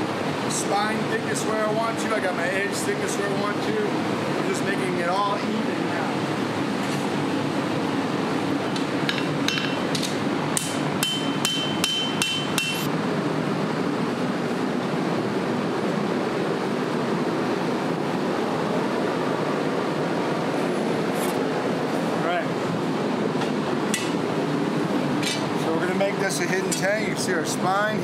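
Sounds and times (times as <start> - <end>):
hammer striking hot steel: 8.7 - 12.9.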